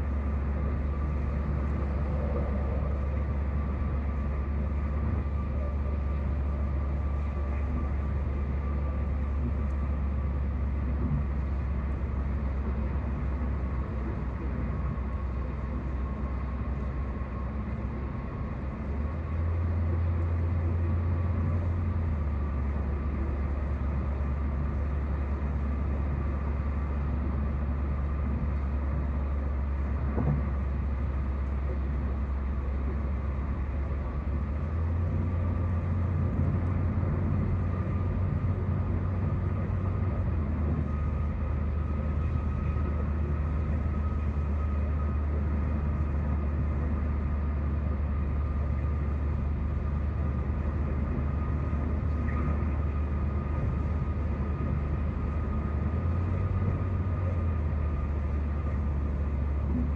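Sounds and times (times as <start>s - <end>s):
car road and engine rumble: 0.0s - 59.9s.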